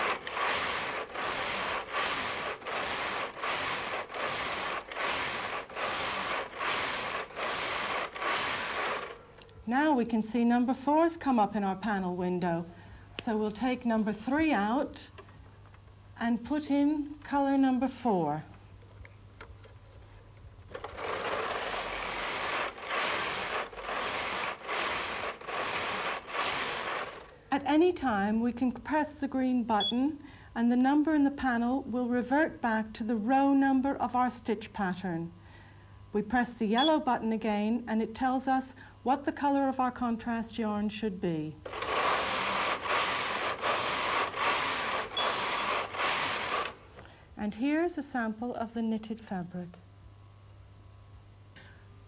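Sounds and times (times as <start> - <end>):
knitting machine carriage rasping: 0.0 - 9.3, 20.7 - 27.4, 41.7 - 46.8.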